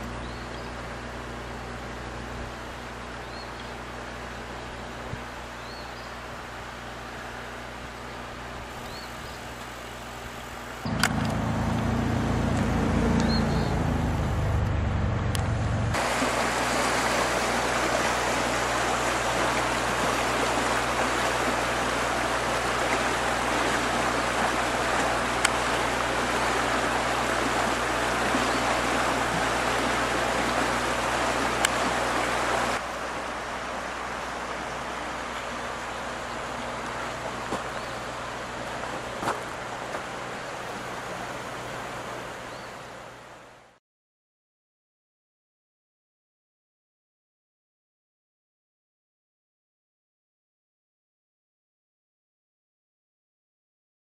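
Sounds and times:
steady outdoor rushing noise: 9.9 - 42.4
loud flickering low rumble: 10.8 - 16.0.

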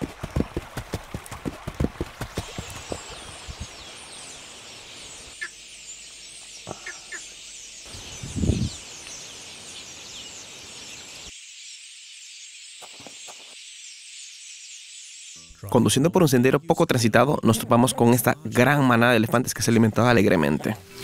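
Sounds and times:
small birds twittering: 2.1 - 16.4.

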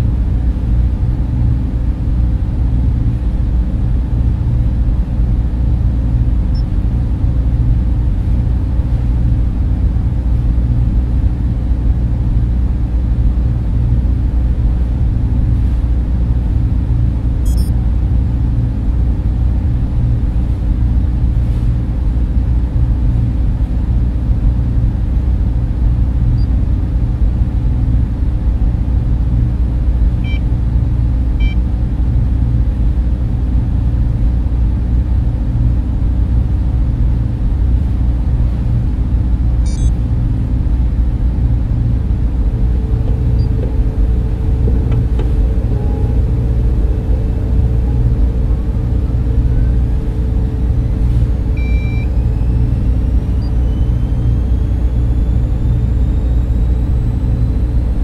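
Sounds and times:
deep machine rumble: 0.0 - 58.0
faint high-pitched hum: 2.7 - 21.8, 38.3 - 58.0
faint electronic beeps: 17.4 - 17.8, 39.6 - 40.0, 42.6 - 57.8.

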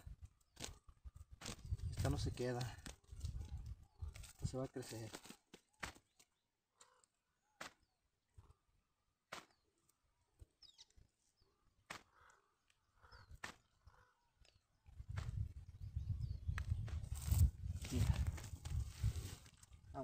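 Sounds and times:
faint bird chirps: 10.5 - 15.0.

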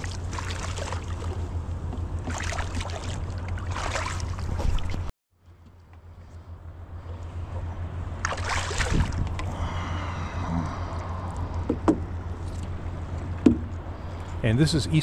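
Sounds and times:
water splashing: 0.0 - 1.6, 2.2 - 5.1, 8.1 - 9.6
steady low drone: 5.4 - 15.0.

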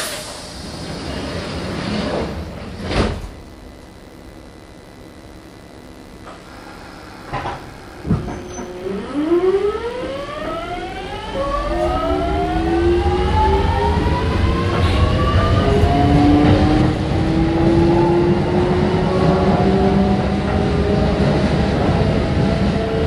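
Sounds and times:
electric train inverter whine: 0.0 - 23.0
wheels rumbling on rail: 7.2 - 9.1, 10.0 - 23.0.

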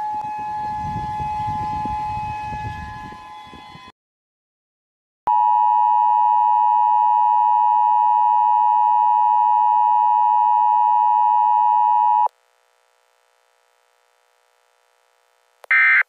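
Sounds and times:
emergency alert tone: 0.0 - 3.9, 5.3 - 12.3, 15.7 - 16.0.

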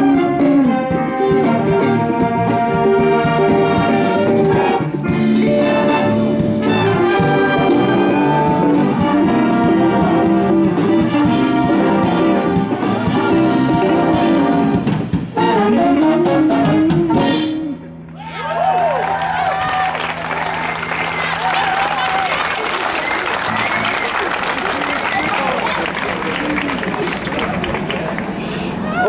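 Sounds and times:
trumpets and trombones: 0.0 - 17.9
wind band playing jazz: 0.0 - 18.0.

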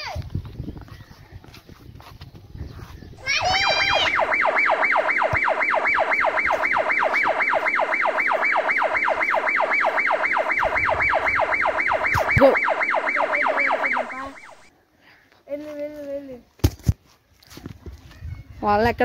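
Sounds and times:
electronic siren wailing: 3.2 - 14.7.

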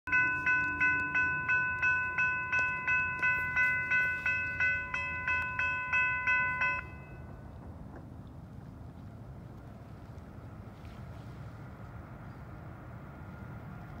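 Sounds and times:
crossing warning bell ringing: 0.1 - 7.6
low steady rumble: 0.1 - 14.0.

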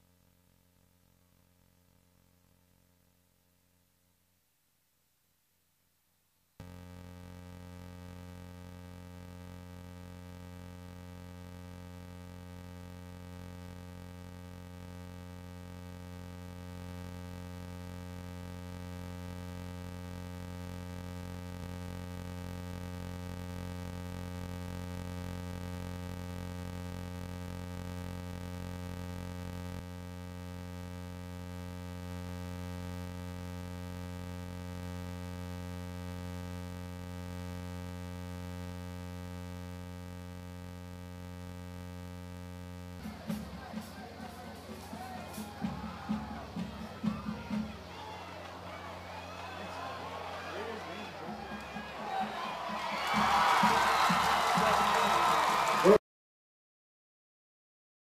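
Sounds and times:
crowd and game noise: 43.0 - 56.0.

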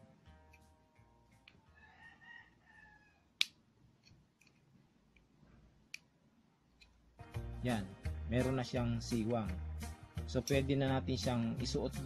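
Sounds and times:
distant rooster crowing: 1.6 - 3.4.

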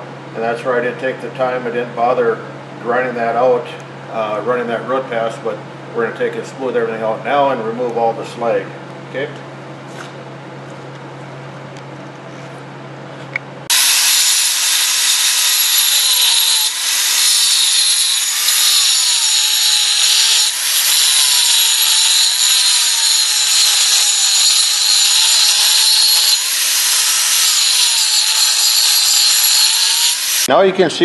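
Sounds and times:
angle grinder grinding steel: 13.7 - 30.5.

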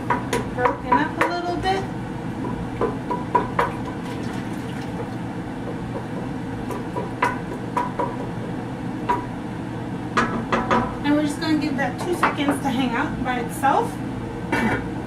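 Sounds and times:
spoon knocking against pot: 2.4 - 3.9
liquid sloshing: 3.7 - 5.2.

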